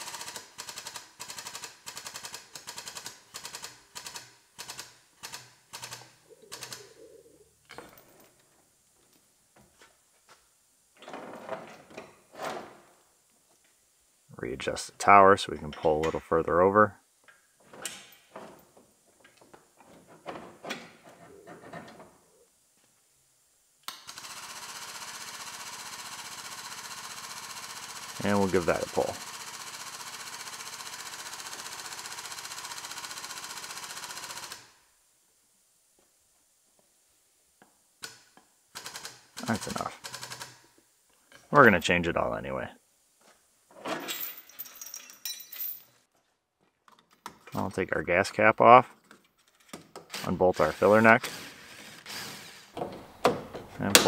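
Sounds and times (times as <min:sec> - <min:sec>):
metal clinks and knocks: 0:43.9 - 0:46.0.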